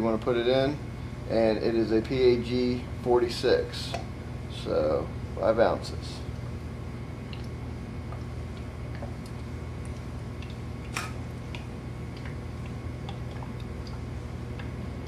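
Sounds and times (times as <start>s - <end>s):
steady low hum: 0.0s - 15.0s
sharp click: 10.9s - 11.2s.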